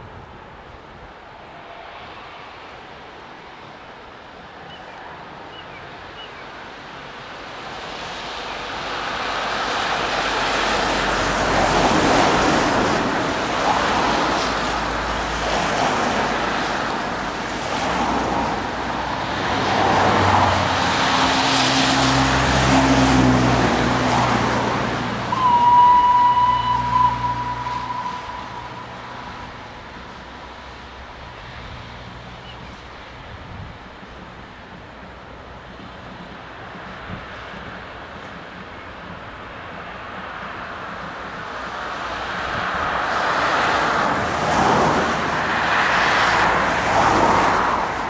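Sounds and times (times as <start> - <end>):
steam locomotive exhaust: 8.8 - 31.0.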